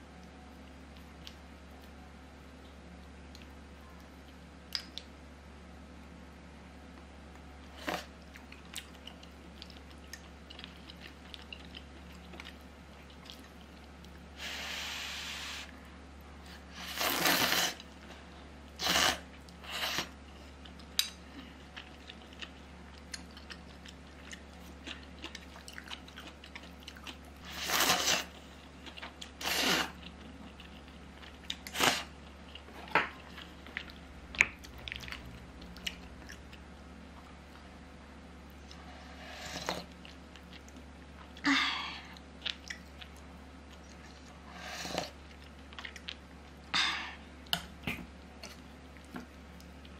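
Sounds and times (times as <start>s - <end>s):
chewing: 7.8s - 14.2s, 19.3s - 36.6s, 38.6s - 41.4s, 42.1s - 46.6s
breathy hiss: 14.4s - 15.7s.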